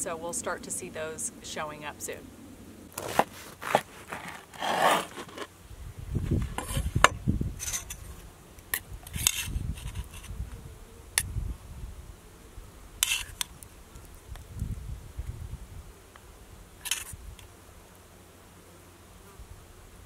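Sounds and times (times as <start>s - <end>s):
knife sawing through bread: 3.4s - 5.4s.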